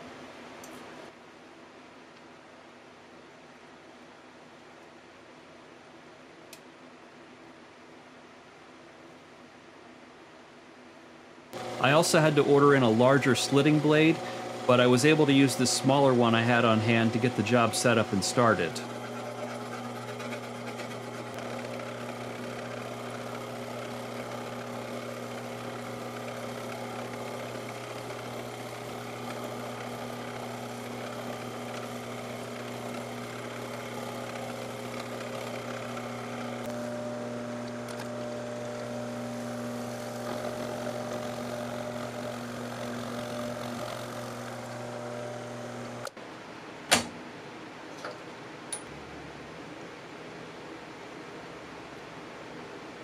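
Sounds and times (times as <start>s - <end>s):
saw cutting metal: 11.6s - 46.1s
milling machine humming: 11.6s - 46.2s
sharp metallic click: 46.9s - 47.2s, 48.0s - 48.9s.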